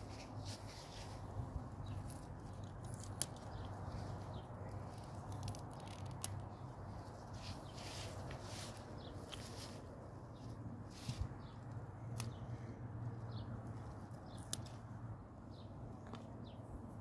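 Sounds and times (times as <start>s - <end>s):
rustling handling noise: 0.0s - 11.4s.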